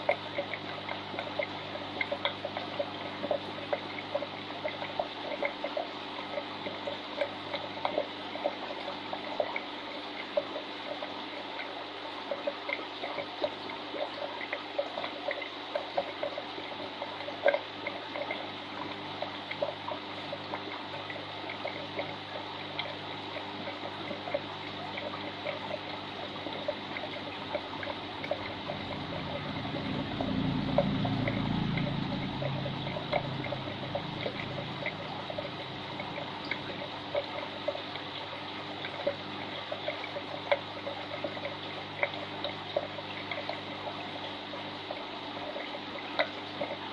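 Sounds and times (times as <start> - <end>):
aquarium water trickling and bubbling: 0.0 - 46.9
small water plops: 0.0 - 46.9
faint low hum: 15.2 - 44.2.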